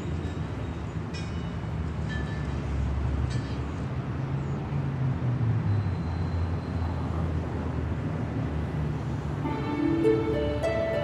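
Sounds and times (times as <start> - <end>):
low engine rumble: 9.3 - 11.0.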